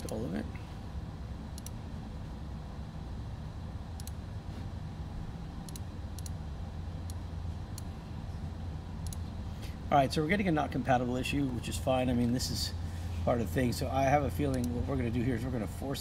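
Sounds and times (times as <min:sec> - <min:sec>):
low background hum: 0:00.0 - 0:16.0
computer mouse clicking: 0:01.6 - 0:01.8, 0:04.0 - 0:04.2, 0:05.6 - 0:06.4, 0:09.0 - 0:09.2.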